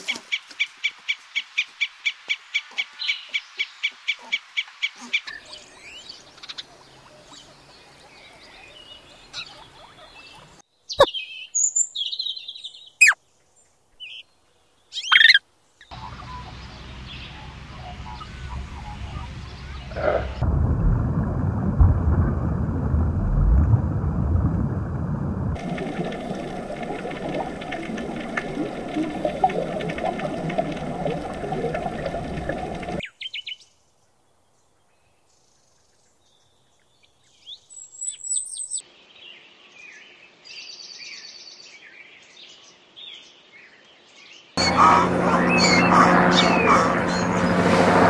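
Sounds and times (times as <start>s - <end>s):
ground squirrels whistling and squeaking: 15.0s - 15.4s, 44.6s - 47.3s
chipmunk chip calls: 15.0s - 19.9s
underwater rush of water: 15.9s - 33.0s.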